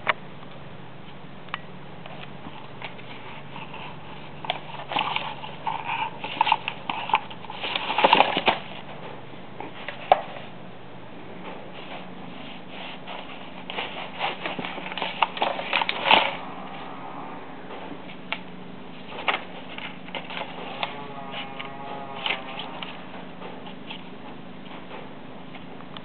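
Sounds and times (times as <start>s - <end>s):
paper rustling: 2.1s - 9.0s, 11.7s - 16.6s, 19.0s - 24.9s.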